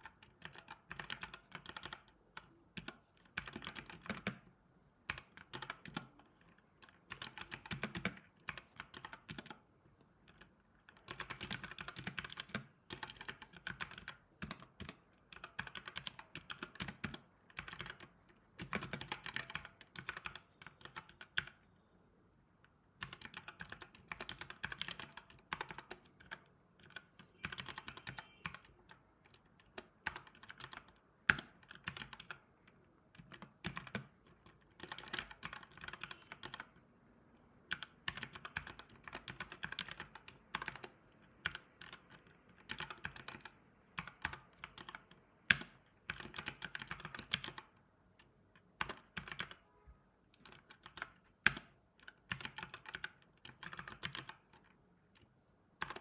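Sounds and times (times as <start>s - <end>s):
typing on computer keyboard: 0.0s - 21.6s, 22.6s - 36.9s, 37.6s - 49.7s, 50.3s - 56.0s.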